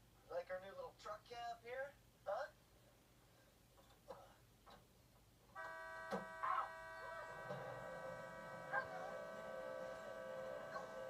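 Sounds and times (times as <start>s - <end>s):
held synthesised chord: 5.6s - 11.0s.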